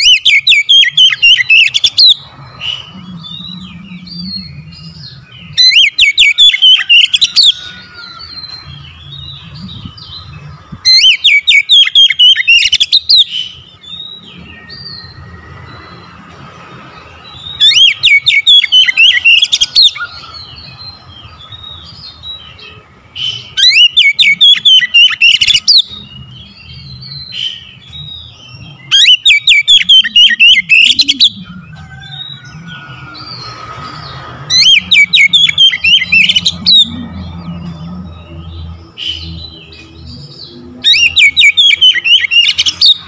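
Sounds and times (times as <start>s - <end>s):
bird singing sweeping high notes: 16.9s - 43.0s.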